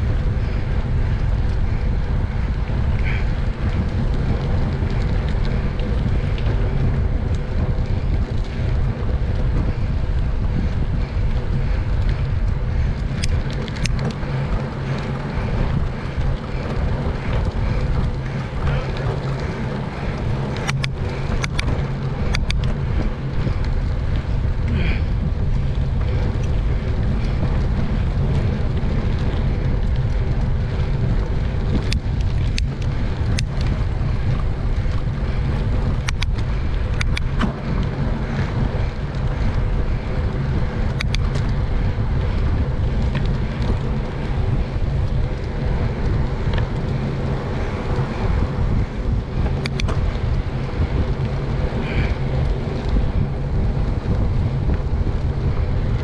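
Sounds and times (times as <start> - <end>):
low rumble: 0.0 - 56.0
wind noise on microphone: 0.0 - 56.0
sharp clicks: 20.2 - 22.8, 36.0 - 37.6, 49.5 - 50.1.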